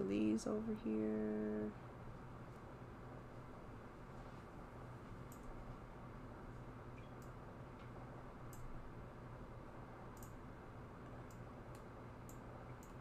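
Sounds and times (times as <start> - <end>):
steady low hum: 0.0 - 13.0
computer mouse clicking: 5.3 - 5.6, 10.1 - 10.4, 11.2 - 13.0.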